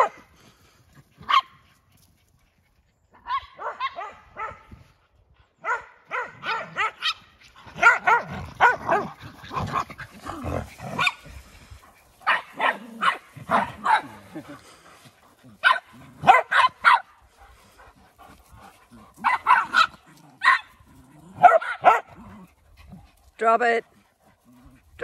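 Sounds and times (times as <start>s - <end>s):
dogs barking and yipping: 0.0s - 23.3s.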